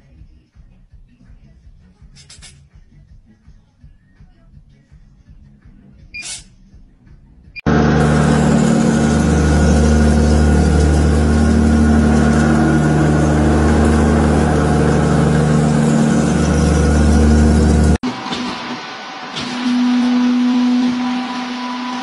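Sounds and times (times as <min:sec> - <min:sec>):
boring machine humming: 0:07.6 - 0:22.0.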